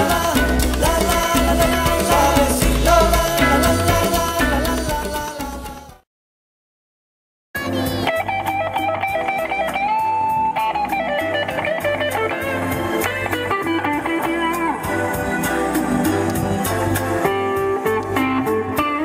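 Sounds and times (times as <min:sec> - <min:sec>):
electric guitar blues lead: 0:00.0 - 0:05.1, 0:07.6 - 0:19.0
steady beat: 0:00.0 - 0:06.0.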